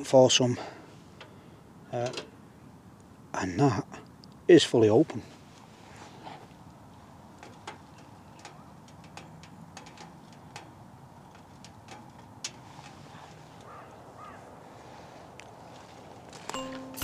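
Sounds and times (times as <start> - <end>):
steady hiss of burning: 0.0 - 16.4
wood fire crackling and popping: 6.2 - 13.8.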